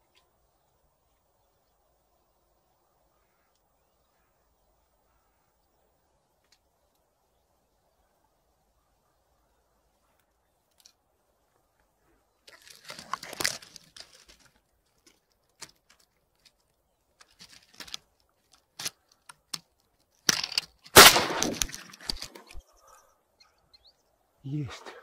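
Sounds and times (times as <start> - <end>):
crackling and rustling movement: 10.1 - 22.7
loud shotgun shot: 21.0 - 21.9.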